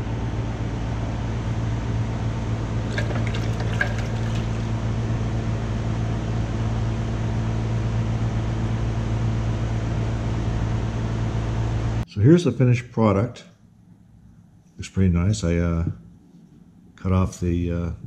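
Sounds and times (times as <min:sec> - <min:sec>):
low mechanical hum: 0:00.0 - 0:18.0
metal part swished in water: 0:02.9 - 0:04.8
water splashing and dripping: 0:02.9 - 0:04.8.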